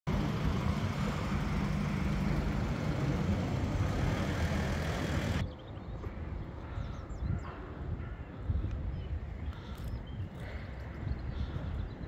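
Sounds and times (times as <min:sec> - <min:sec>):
traffic engine rumble: 0:00.1 - 0:06.7.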